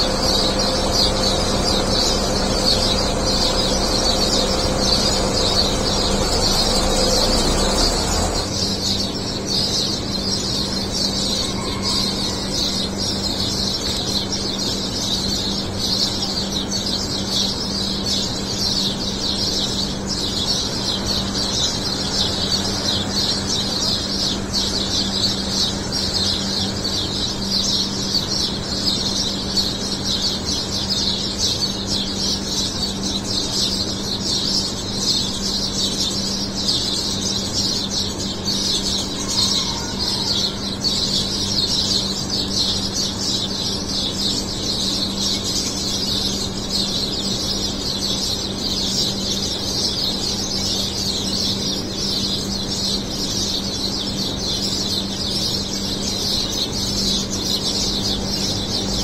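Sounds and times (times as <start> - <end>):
steady low hum: 0.0 - 11.2
small birds chirping: 0.0 - 59.0.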